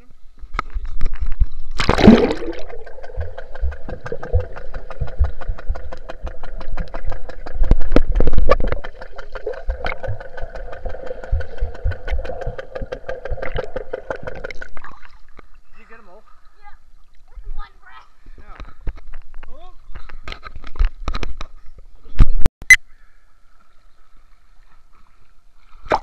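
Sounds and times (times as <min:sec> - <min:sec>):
splash into water: 0:01.7 - 0:04.4
low thumps: 0:01.8 - 0:14.8
underwater pump hum with ticking: 0:01.8 - 0:15.6.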